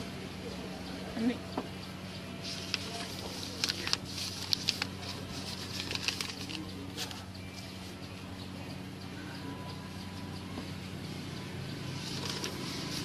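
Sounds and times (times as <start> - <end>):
paper and leaf crinkling: 2.4 - 7.2, 12.0 - 13.0.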